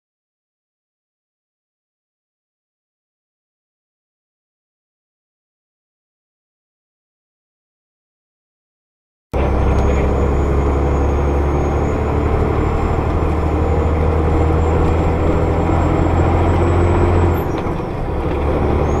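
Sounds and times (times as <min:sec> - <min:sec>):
low engine drone: 0:09.4 - 0:19.0
road noise: 0:09.4 - 0:19.0.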